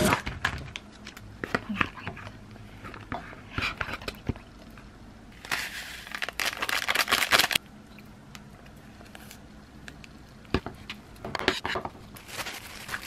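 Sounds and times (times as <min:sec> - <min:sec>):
plastic packet crinkling and rattling: 0:05.4 - 0:07.6, 0:12.2 - 0:13.0.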